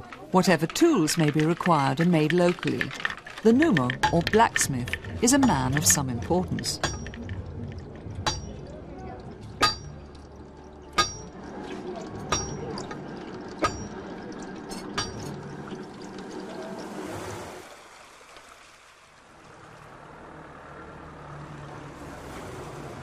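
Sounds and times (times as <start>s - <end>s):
hammer striking iron on anvil: 6.8s - 7.2s, 8.3s - 8.6s, 9.6s - 9.9s, 11.0s - 11.3s, 12.3s - 12.7s, 13.6s - 14.0s, 15.0s - 15.3s.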